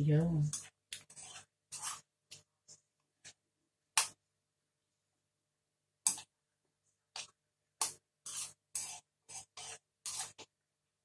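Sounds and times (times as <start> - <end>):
metal spoon scraping a pan: 0.5 - 2.5, 7.1 - 10.5.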